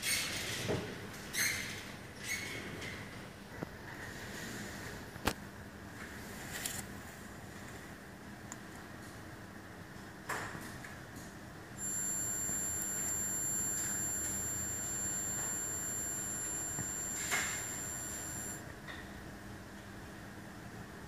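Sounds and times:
high-pitched electronic whine: 11.8s - 18.6s.

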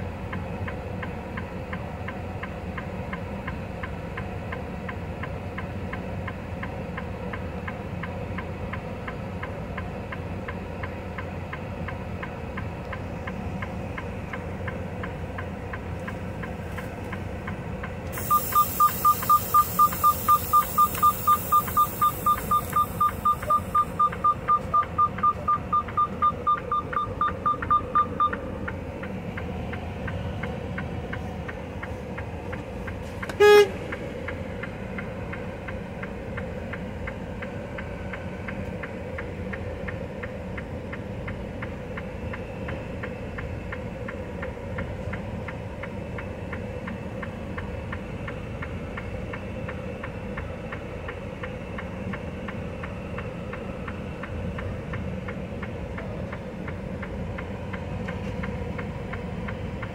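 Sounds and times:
diesel truck engine idling: 0.0s - 59.9s
air hissing: 18.2s - 24.0s
rapid high beeping: 18.2s - 28.4s
loud horn blast falling pitch: 33.3s - 34.0s.

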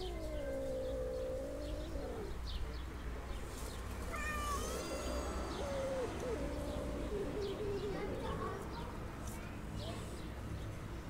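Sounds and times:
cat yowling: 0.0s - 2.4s, 4.0s - 8.4s
cat meowing: 4.0s - 8.0s.

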